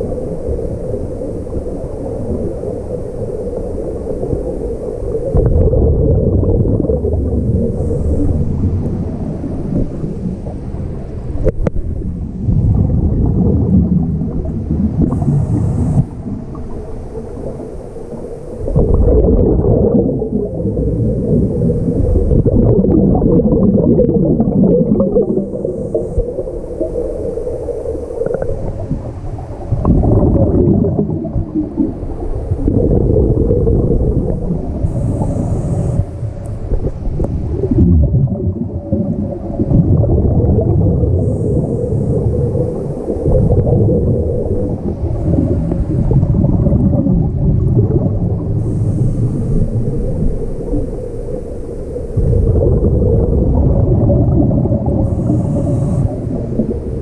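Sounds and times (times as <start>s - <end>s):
gurgle of exhaled bubbles: 0.0s - 57.0s
regulator hiss on inhale: 7.6s - 8.8s, 15.1s - 16.3s, 25.4s - 28.8s, 34.8s - 37.0s, 41.2s - 43.2s, 48.6s - 52.2s, 55.0s - 57.0s.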